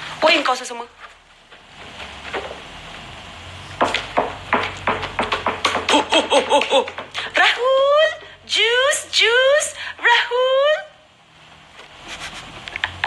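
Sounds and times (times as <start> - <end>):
woman laughing: 5.9 - 10.9.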